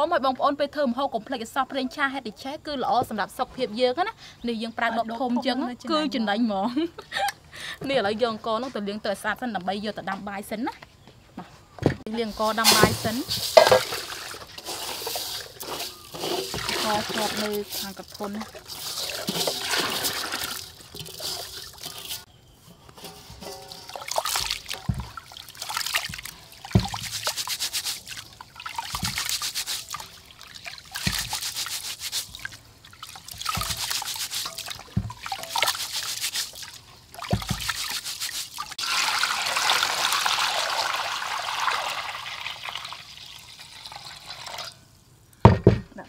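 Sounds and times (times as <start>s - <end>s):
rice washed in pot of water: 12.1s - 44.8s
water pouring into pot: 12.4s - 22.3s, 23.4s - 44.8s.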